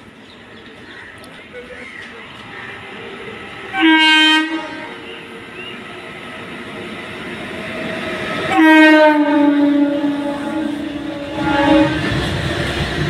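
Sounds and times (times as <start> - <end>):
freight train rumble: 0.0 - 13.0
locomotive horn blasts: 3.7 - 5.1, 8.5 - 12.1.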